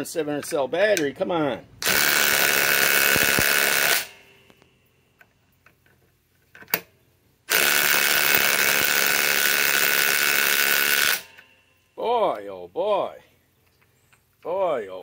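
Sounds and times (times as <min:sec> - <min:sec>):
impact wrench hammering: 0:01.8 - 0:04.6, 0:07.5 - 0:11.4.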